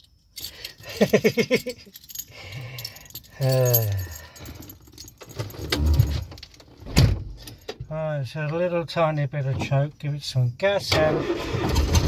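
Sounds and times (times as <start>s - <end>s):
keys jangling: 0.0s - 6.7s
man laughing: 0.8s - 2.1s.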